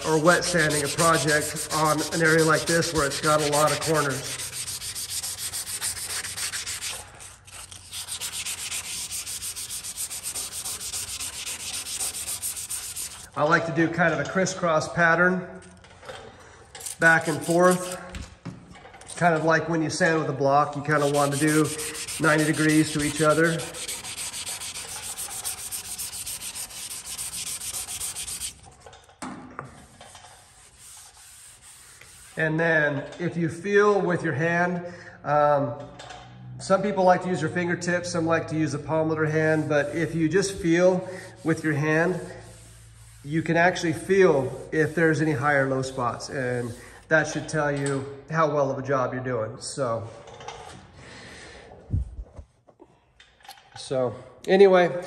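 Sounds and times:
sandpaper rasping by hand: 0.0s - 13.4s, 16.8s - 18.1s, 20.9s - 28.7s, 29.8s - 32.4s, 39.4s - 47.0s.

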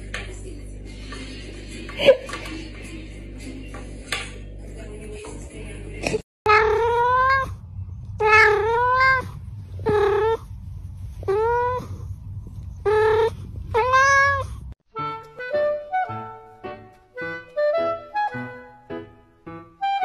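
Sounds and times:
cat meowing: 6.5s - 7.6s, 8.2s - 10.4s, 11.2s - 12.0s, 12.8s - 14.6s.

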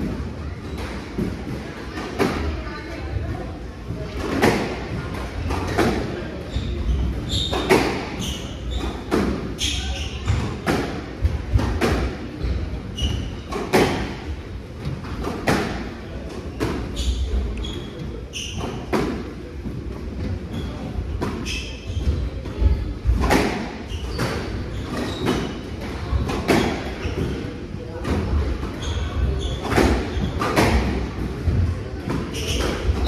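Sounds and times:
squash ball hitting rackets and walls: 0.0s - 33.0s
shoes squeaking on wooden floor: 6.4s - 10.7s, 16.4s - 19.0s, 20.2s - 27.6s, 28.4s - 30.9s, 32.2s - 33.0s.

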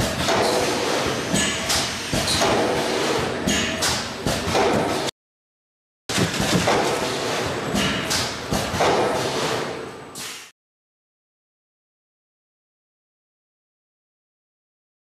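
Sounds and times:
machinery clattering: 6.1s - 9.8s.

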